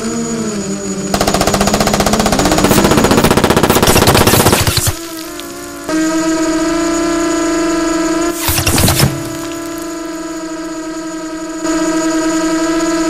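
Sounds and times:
machine-gun burst: 1.2s - 6.0s, 8.3s - 10.1s.

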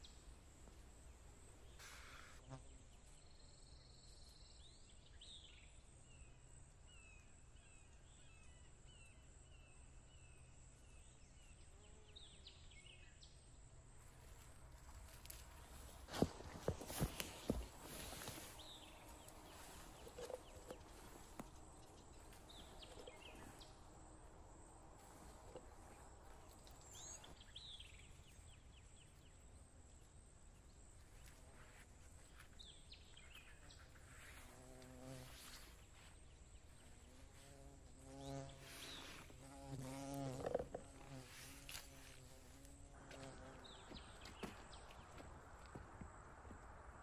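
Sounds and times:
fly buzzing: 37.2s - 43.9s.

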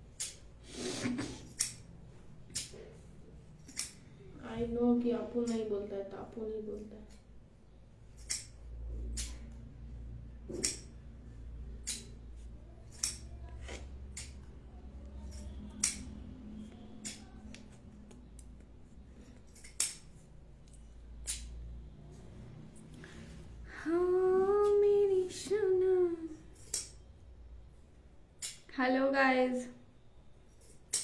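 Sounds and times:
low steady hum: 0.0s - 31.0s
scissors snipping cloth: 0.2s - 0.4s, 1.0s - 4.1s, 8.1s - 9.7s, 10.4s - 21.7s, 26.6s - 27.0s, 30.5s - 31.0s.

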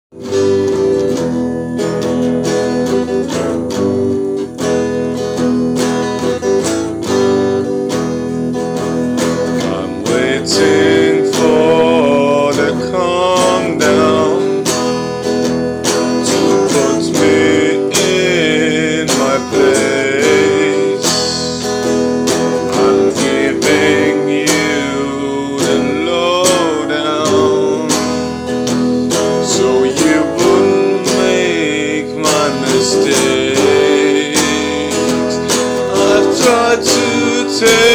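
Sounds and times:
acoustic guitar strummed: 0.1s - 37.9s
man singing: 9.2s - 14.9s, 16.0s - 37.9s.

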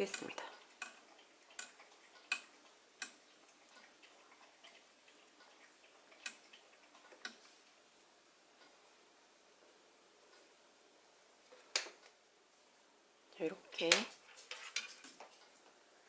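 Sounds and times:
knitting needles clicking: 0.0s - 3.2s.

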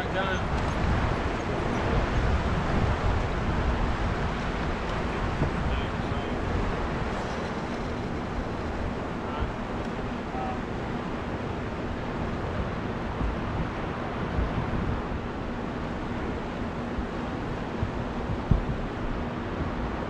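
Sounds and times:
faint steady hum: 0.0s - 20.0s
water sounds: 0.0s - 20.0s
wind buffeting microphone: 0.0s - 20.0s
low thumps: 17.8s - 18.9s.

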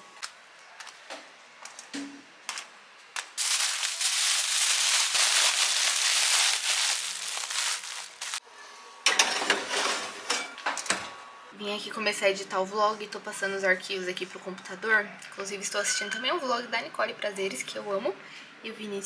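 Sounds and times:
aluminium foil crinkling: 3.2s - 8.4s.

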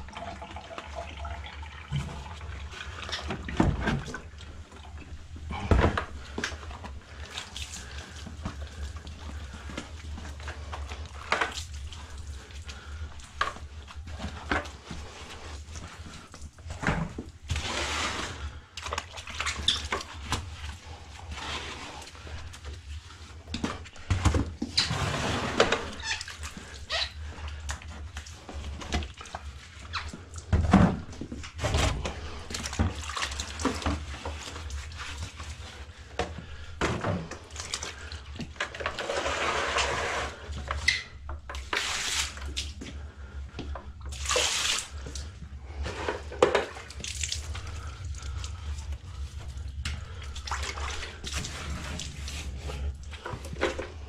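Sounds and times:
water pouring and splashing: 0.0s - 54.0s
plastic jugs knocking and rattling: 1.9s - 7.1s, 16.6s - 20.6s, 23.4s - 26.2s, 27.9s - 34.7s, 36.1s - 39.8s, 45.8s - 47.0s, 50.0s - 54.0s.

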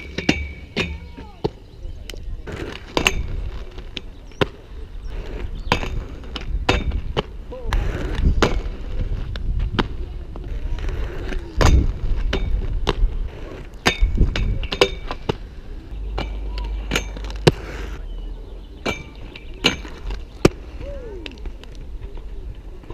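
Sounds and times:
skates clacking on metal rail: 0.0s - 1.6s, 5.7s - 8.8s, 11.2s - 15.4s, 16.1s - 17.7s
inline skates rolling on concrete: 0.0s - 22.9s.

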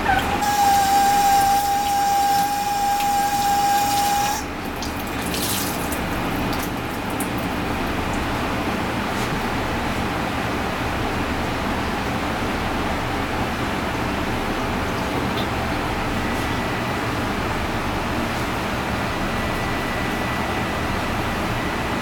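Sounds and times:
water splashing into a sink: 0.4s - 8.3s.

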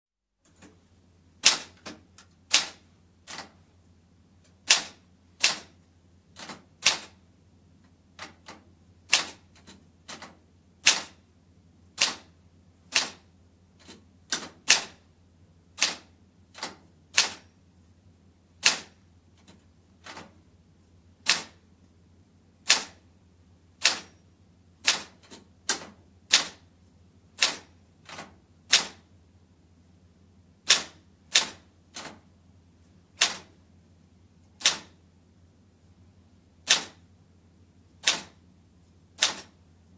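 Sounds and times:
typewriter key strikes: 1.4s - 3.5s, 4.6s - 5.7s, 8.2s - 11.2s, 12.0s - 12.3s, 12.9s - 13.2s, 13.8s - 15.0s, 15.8s - 17.5s, 18.6s - 20.3s, 21.2s - 21.6s, 22.6s - 23.0s, 23.8s - 24.2s, 24.8s - 26.6s, 27.4s - 29.0s, 30.7s - 32.2s, 33.2s - 33.5s, 34.6s - 35.0s, 36.6s - 37.0s, 38.0s - 38.4s, 39.2s - 39.6s.

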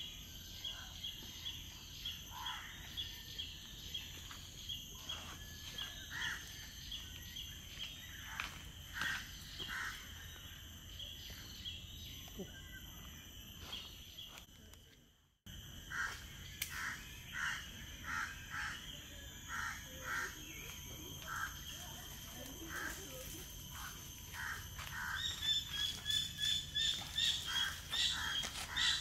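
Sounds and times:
high insect drone: 0.0s - 29.0s
bird calling: 24.2s - 29.0s.

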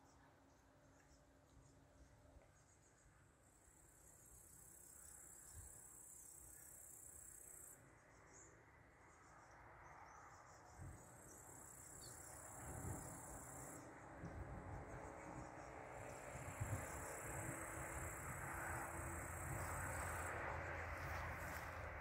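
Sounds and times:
crickets trilling: 9.2s - 22.0s
low wind rumble: 12.2s - 22.0s.

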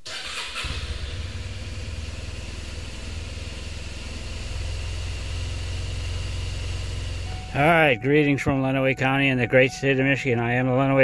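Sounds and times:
car engine idling: 0.2s - 8.3s.

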